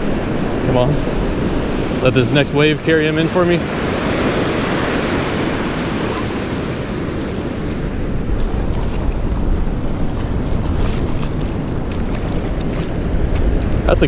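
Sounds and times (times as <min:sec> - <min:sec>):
ocean surf on beach: 0:00.0 - 0:14.0
wind rumbling on microphone: 0:00.0 - 0:14.0.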